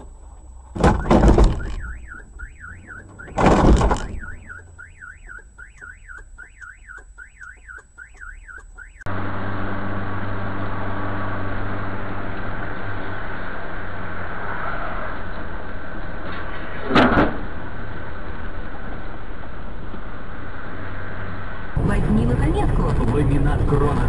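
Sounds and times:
road and engine noise inside car: 0:00.0 - 0:24.0
car collision crashes: 0:00.7 - 0:05.0, 0:16.3 - 0:17.5
car alarm wailing: 0:00.8 - 0:09.1.

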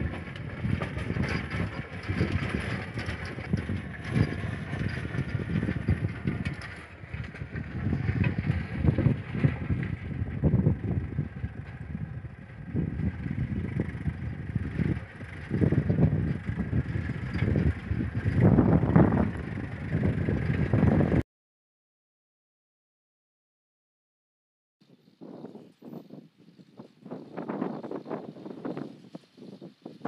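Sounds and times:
rotavator blades churning soil: 0:00.0 - 0:21.2
tractor diesel engine running: 0:00.0 - 0:21.2
wind buffeting microphone: 0:00.0 - 0:21.2, 0:24.9 - 0:30.0.

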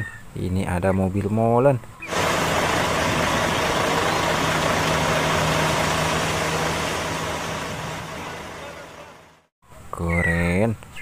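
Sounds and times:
diesel engine running: 0:02.1 - 0:09.5.

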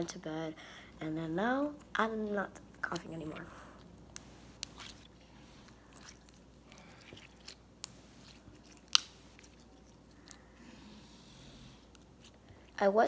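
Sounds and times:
slime squelching with wet pops: 0:03.8 - 0:10.5.

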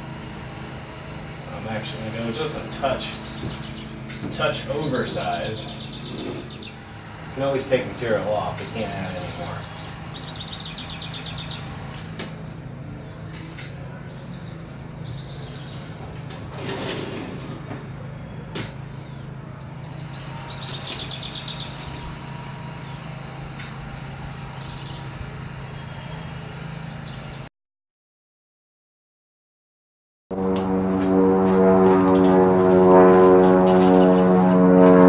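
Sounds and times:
low steady hum: 0:00.0 - 0:27.5, 0:30.3 - 0:35.0
small birds chirping: 0:01.0 - 0:16.0, 0:18.2 - 0:27.5
tape being pulled: 0:05.7 - 0:06.7, 0:16.3 - 0:17.8.

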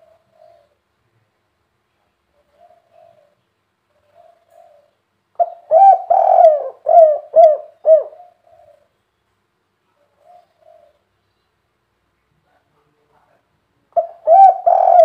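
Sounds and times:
dove cooing: 0:00.0 - 0:00.9, 0:02.3 - 0:09.0, 0:10.0 - 0:11.2, 0:13.9 - 0:15.0.

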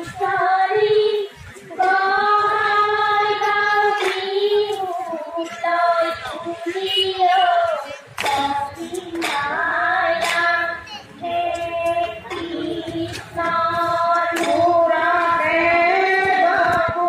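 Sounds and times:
women singing together: 0:00.0 - 0:17.0
sharp clacks: 0:08.2 - 0:10.7, 0:11.4 - 0:14.8.

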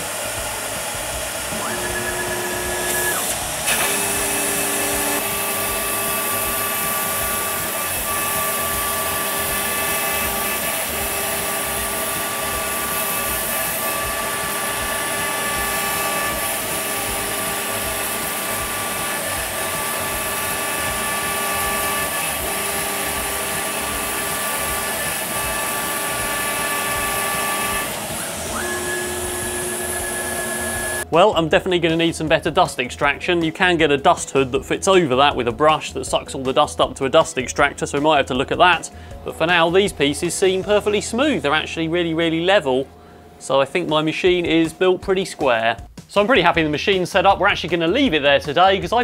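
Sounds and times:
router spindle cutting: 0:00.0 - 0:31.1
vacuum hose sucking: 0:00.0 - 0:31.1.

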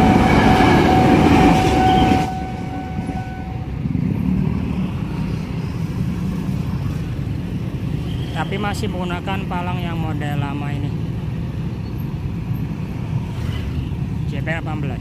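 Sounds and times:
steady high tone: 0:00.0 - 0:03.9
train wheels rumbling on rails: 0:00.0 - 0:15.0.

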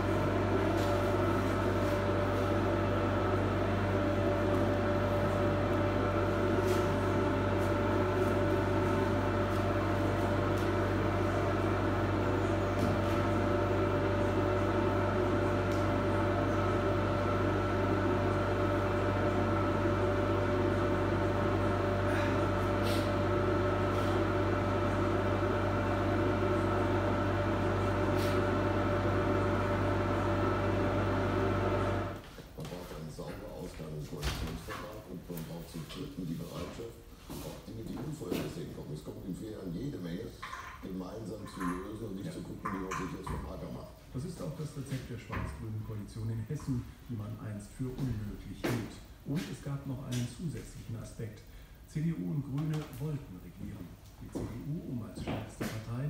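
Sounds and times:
dust extractor humming: 0:00.0 - 0:32.7.

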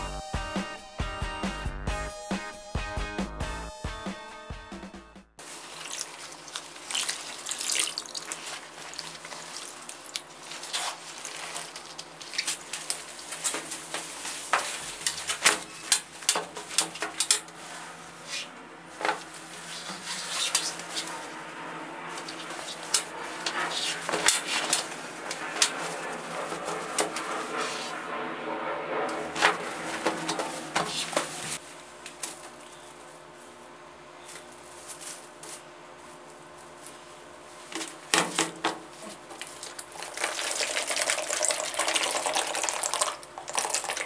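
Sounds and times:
cloth rustling: 0:05.4 - 0:16.3, 0:29.4 - 0:33.6
water sloshing and splashing: 0:05.5 - 0:13.3, 0:39.4 - 0:44.0
wet cloth squeezed: 0:05.6 - 0:12.7, 0:39.4 - 0:44.0.

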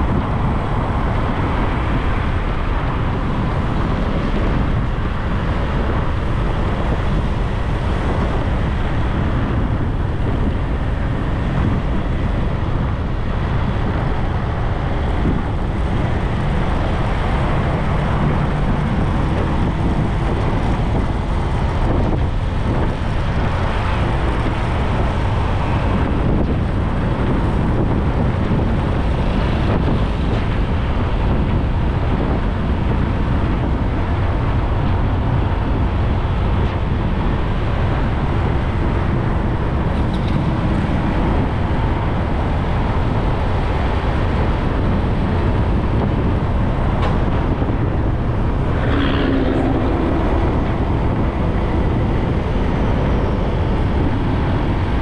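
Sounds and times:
road traffic: 0:00.0 - 0:55.0
wind buffeting microphone: 0:00.0 - 0:55.0.

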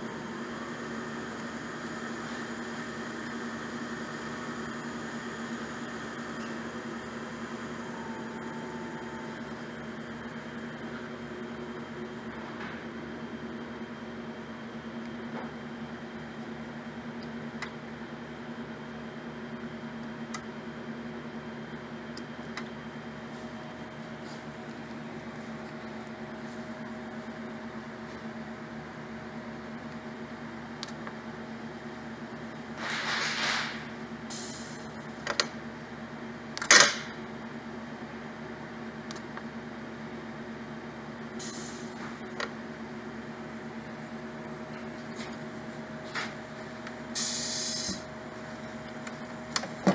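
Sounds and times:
short burst of hiss: 0:32.8 - 0:33.8, 0:47.2 - 0:48.0.

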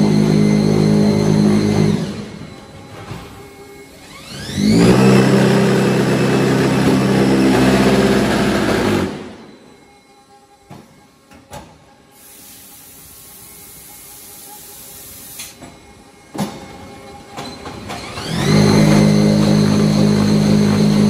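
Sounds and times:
machine hissing: 0:12.1 - 0:17.3.

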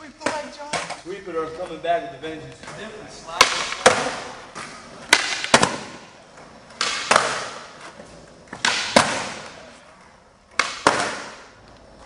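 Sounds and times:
skateboard wheels slapping ground: 0:02.6 - 0:12.0
skateboard tail snapping: 0:03.4 - 0:06.0, 0:06.7 - 0:07.9, 0:08.5 - 0:09.6, 0:10.5 - 0:11.9
skateboard rolling on concrete: 0:03.8 - 0:12.0.

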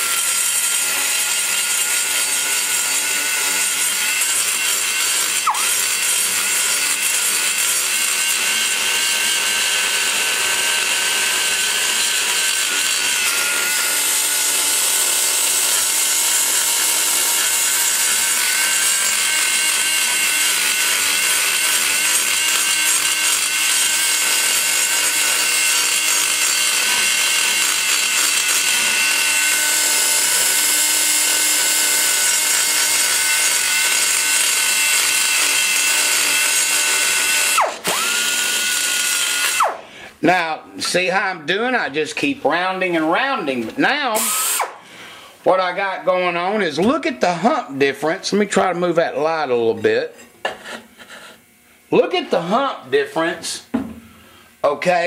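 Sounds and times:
die grinder whining: 0:00.0 - 0:47.2.

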